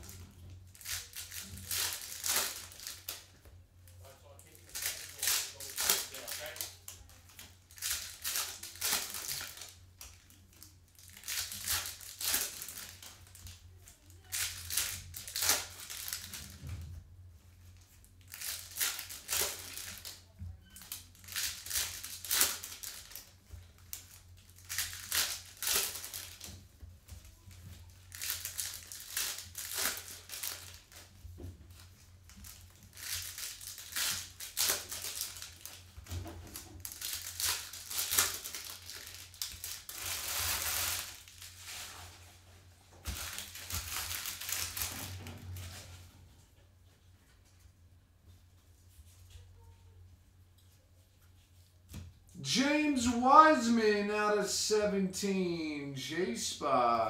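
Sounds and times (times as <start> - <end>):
foil wrappers crinkling and tearing: 0.0 - 3.3, 4.4 - 16.6, 17.9 - 26.6, 27.3 - 42.4, 43.0 - 45.8.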